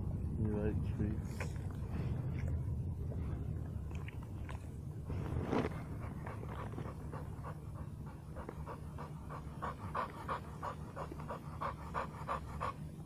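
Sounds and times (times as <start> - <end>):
low steady rumble: 0.0 - 13.0
dog panting: 5.8 - 13.0.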